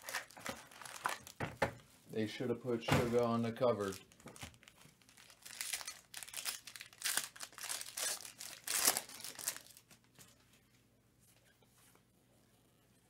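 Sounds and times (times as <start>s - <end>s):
foil wrapper crinkling and tearing: 0.0s - 1.4s, 3.6s - 10.2s.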